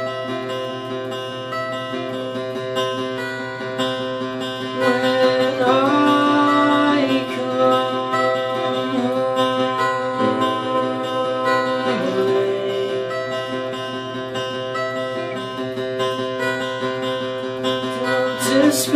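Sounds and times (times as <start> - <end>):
acoustic guitar: 0.0 - 18.9
man singing: 4.7 - 13.8, 17.8 - 18.9.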